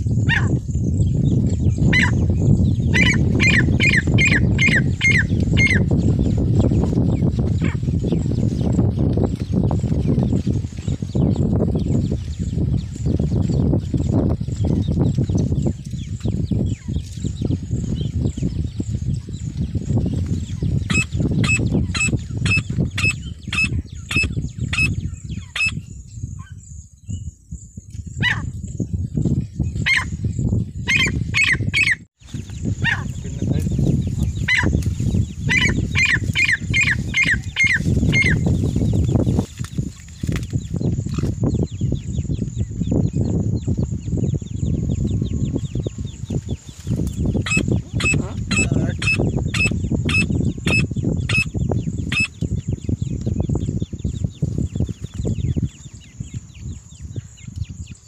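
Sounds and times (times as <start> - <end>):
francolin calling: 1.9 - 6.2, 30.8 - 38.6, 44.6 - 53.5
steady low rumble: 32.4 - 58.0.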